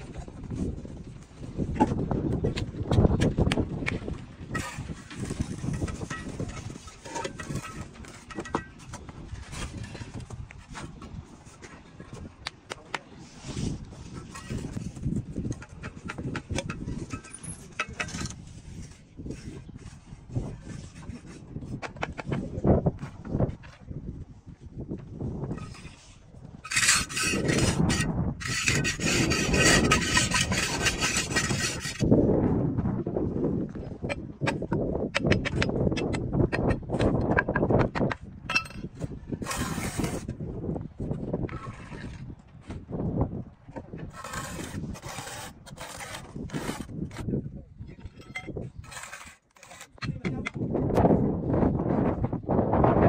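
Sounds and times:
outdoor background noise: 0.0s - 53.0s
tool scraping concrete block: 4.5s - 11.8s, 13.5s - 23.2s, 25.5s - 32.1s, 34.0s - 40.4s, 41.4s - 42.3s, 43.8s - 47.4s, 48.0s - 50.6s
blocks tapping and knocking: 34.1s - 38.9s, 49.7s - 50.6s.

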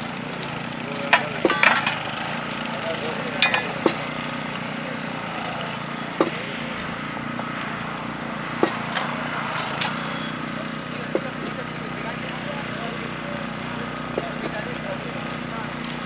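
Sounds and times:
small engine running: 0.0s - 16.0s
sharp knocks: 3.4s - 4.2s, 8.6s - 10.0s, 11.1s - 11.5s.

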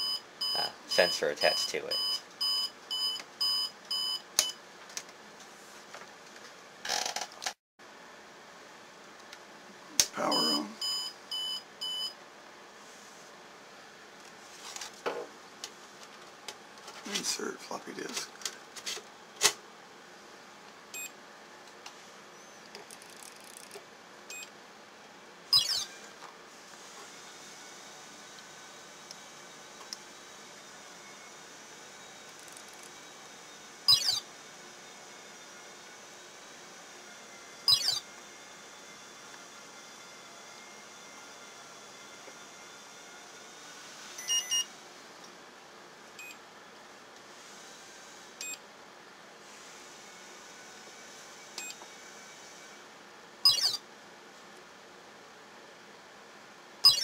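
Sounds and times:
high control panel beeps: 0.0s - 4.6s, 10.3s - 12.2s, 25.6s - 25.8s, 33.9s - 34.2s, 37.7s - 38.0s, 44.2s - 44.7s, 53.5s - 53.8s
short high beeps: 10.3s - 12.1s, 37.7s - 38.0s, 53.5s - 53.8s.

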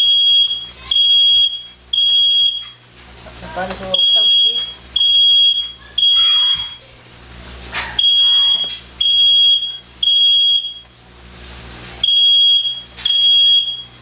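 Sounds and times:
smoke alarm beeping: 0.0s - 2.8s, 3.9s - 6.9s, 8.0s - 11.0s, 12.0s - 14.0s.

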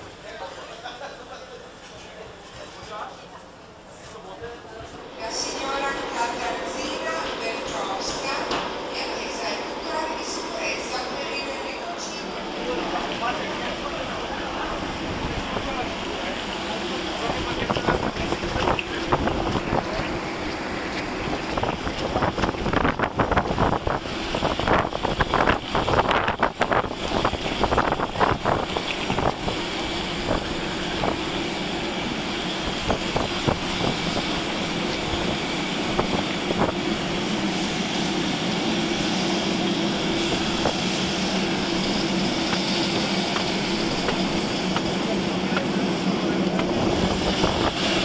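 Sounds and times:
wind buffeting microphone: 17.1s - 48.0s.

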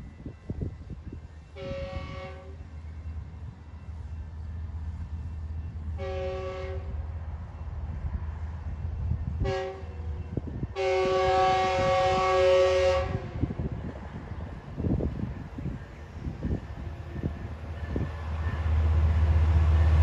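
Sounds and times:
low train rumble: 0.0s - 20.0s
locomotive air horn blasts: 1.5s - 2.7s, 5.9s - 7.1s, 9.4s - 10.1s, 10.7s - 13.6s.

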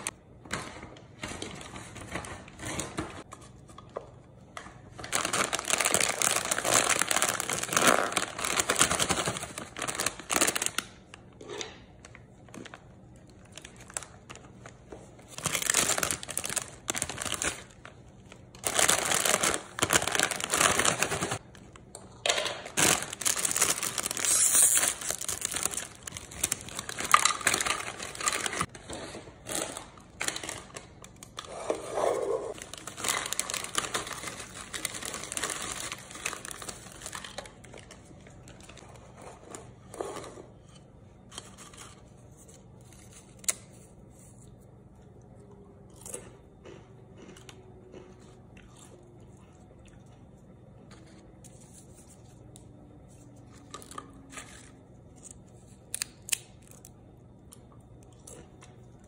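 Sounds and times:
plastic snack bag crinkling: 4.8s - 11.3s, 12.0s - 28.7s, 32.5s - 39.8s.

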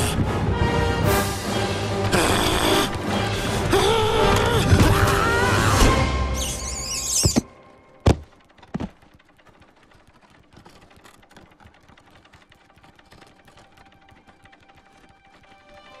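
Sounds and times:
cartoon high wavering squeal: 3.8s - 7.4s.

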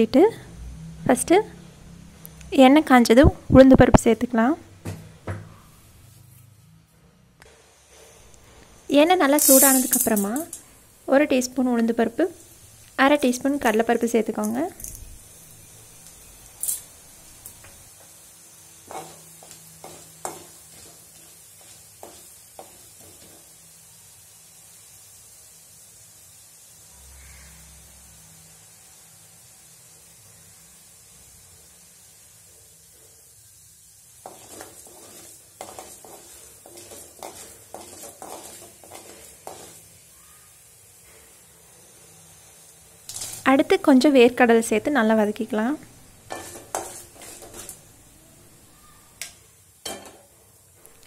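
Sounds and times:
oil sizzling: 0.0s - 6.8s, 7.4s - 51.0s
wooden spatula scraping a pan: 18.8s - 23.5s, 34.2s - 40.0s, 46.3s - 48.0s.

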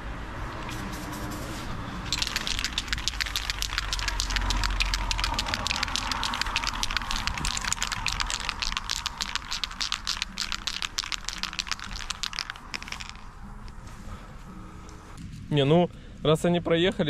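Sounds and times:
spray can rattling while shaken: 0.6s - 13.3s.

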